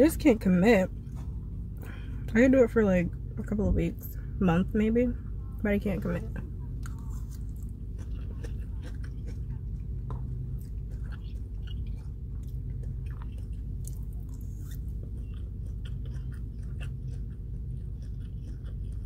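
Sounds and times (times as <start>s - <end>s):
steady low hum: 0.0s - 19.0s
chewing and mouth sounds: 6.3s - 19.0s.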